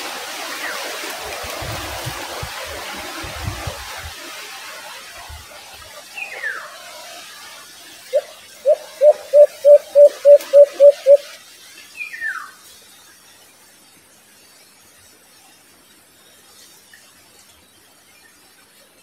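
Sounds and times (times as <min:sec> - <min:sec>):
dove cooing: 0:08.2 - 0:11.2.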